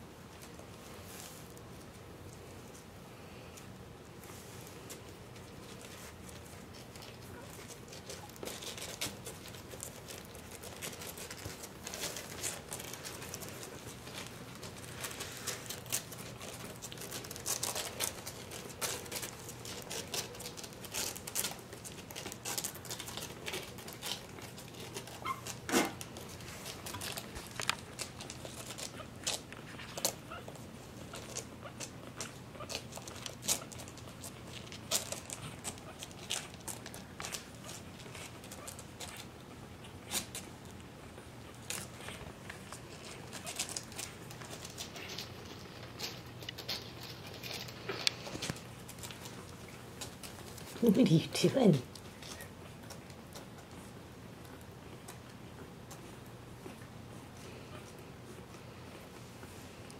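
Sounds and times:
puppies scrabbling on bedding: 4.0 - 59.9.

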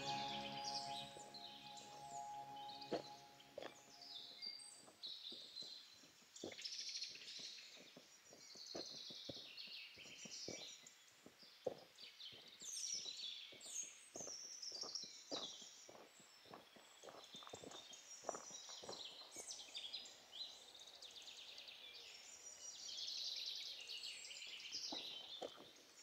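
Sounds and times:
birds chirping and trilling: 0.0 - 4.4.

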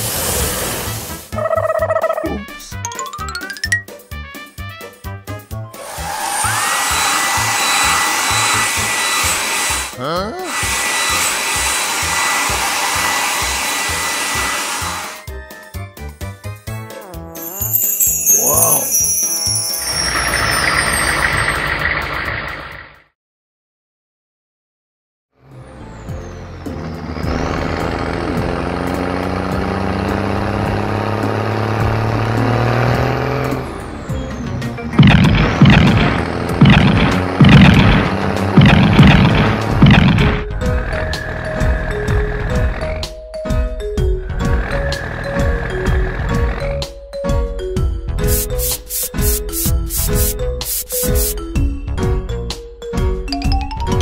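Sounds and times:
blower dryer air rush: 5.8 - 9.9, 10.5 - 15.2, 48.2 - 51.4
squeaky rising glides: 17.1 - 22.8, 25.7 - 39.9
truck engine running: 26.0 - 43.0.

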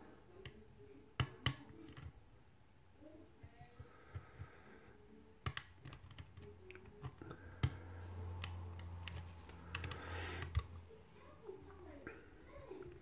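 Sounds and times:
low steady hum: 0.0 - 13.0
lock pick clicking on pins: 5.4 - 7.8.

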